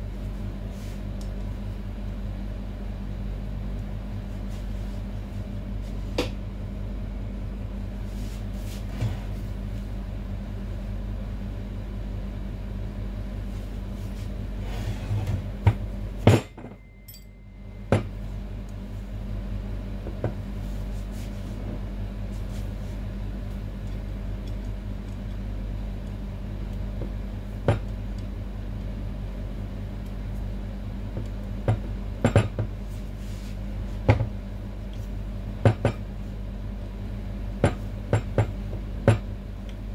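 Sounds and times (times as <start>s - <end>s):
steady low hum: 0.0s - 39.9s
metal tools clanking on steel: 17.1s - 17.3s.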